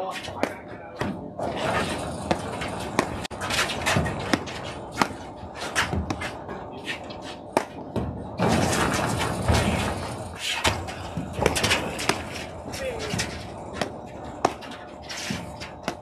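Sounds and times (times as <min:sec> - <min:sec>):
paddles striking ball: 0:00.2 - 0:08.2, 0:10.6 - 0:16.0
ball bouncing on court: 0:00.3 - 0:06.4, 0:07.5 - 0:08.2, 0:10.7 - 0:16.0.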